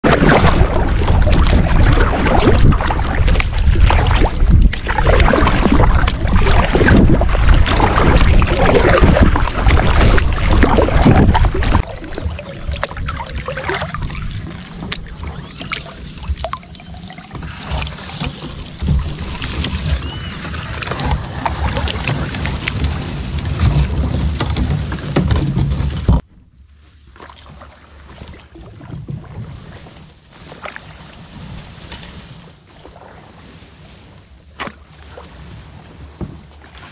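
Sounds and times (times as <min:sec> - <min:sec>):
wind buffeting microphone: 0:00.0 - 0:16.6, 0:17.3 - 0:26.2
paddle splashing in water: 0:00.0 - 0:36.9
steady high-pitched buzz: 0:11.8 - 0:26.2.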